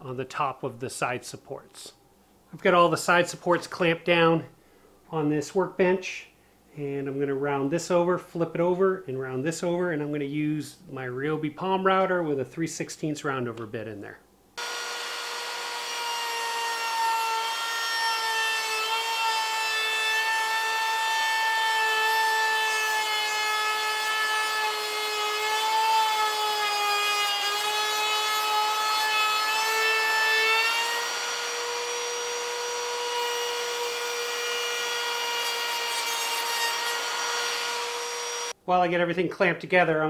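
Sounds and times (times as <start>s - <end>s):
router motor whine cutting wood: 14.6s - 21.0s, 29.5s - 38.5s.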